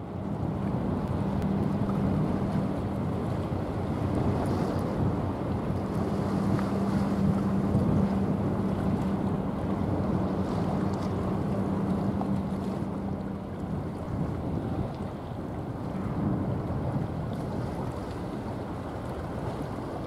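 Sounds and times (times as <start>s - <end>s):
steady low hum: 0.0s - 18.0s
waves washing: 0.0s - 20.0s
wind buffeting microphone: 0.0s - 20.0s.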